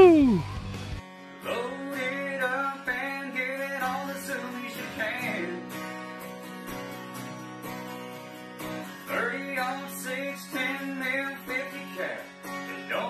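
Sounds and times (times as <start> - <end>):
person singing: 0.0 - 0.5, 1.4 - 5.6
guitar music: 0.0 - 13.0.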